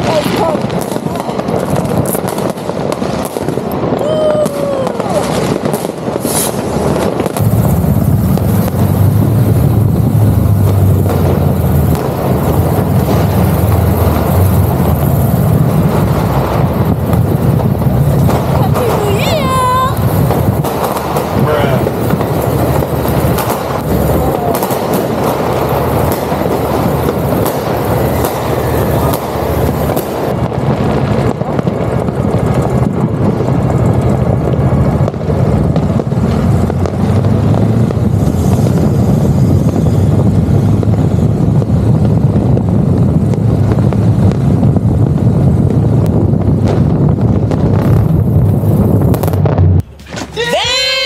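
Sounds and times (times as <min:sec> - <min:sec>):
wind rushing on microphone: 0:00.0 - 0:51.0
motorcycle engine running: 0:07.4 - 0:19.0, 0:19.6 - 0:30.4.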